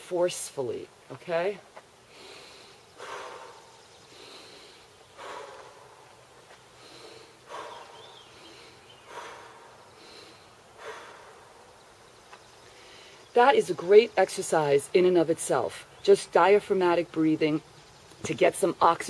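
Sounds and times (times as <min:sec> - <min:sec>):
woman breathing in through nose: 0:02.1 - 0:11.6.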